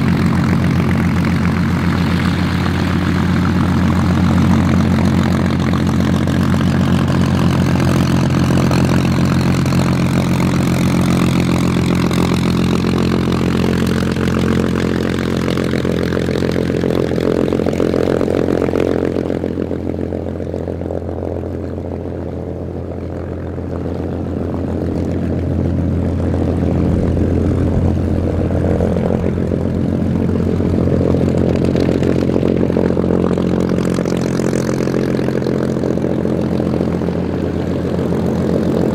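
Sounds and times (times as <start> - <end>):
propeller engine drone: 0.0 - 38.9.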